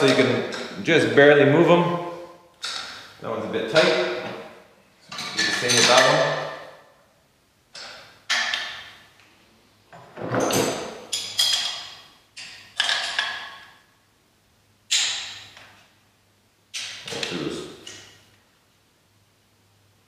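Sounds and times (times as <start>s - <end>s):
metal parts clanking: 5.1s - 6.2s.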